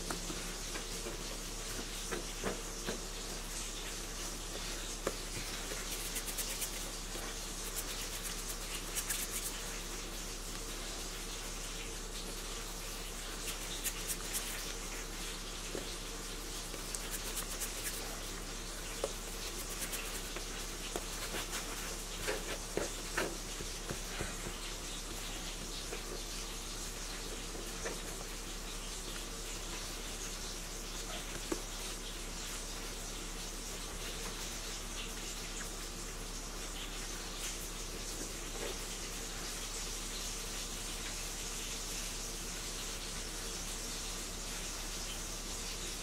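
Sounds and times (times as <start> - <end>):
hands rubbing bread dough: 0.0 - 32.7
background hiss and hum: 0.0 - 46.0.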